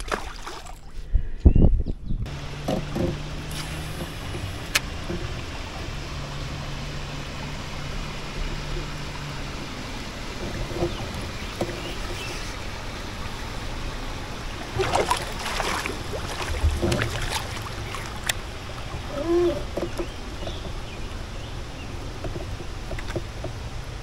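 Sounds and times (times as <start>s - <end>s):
splashes and knocks against boat: 0.0s - 1.0s, 2.3s - 24.0s
water lapping around kayak: 0.0s - 1.2s, 2.3s - 24.0s
short squeak: 19.1s - 20.6s.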